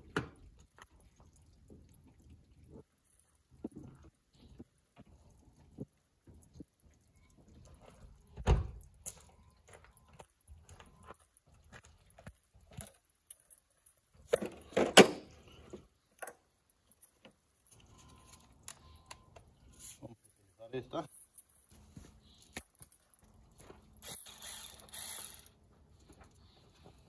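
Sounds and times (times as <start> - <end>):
tools knocking and clattering: 14.3 - 15.3.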